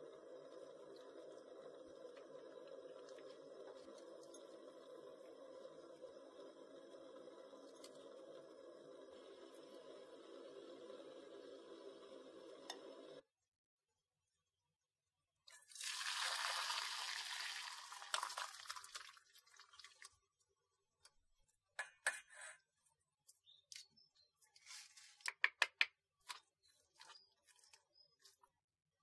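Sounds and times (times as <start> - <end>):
water poured through strainer: 15.5 - 20.2.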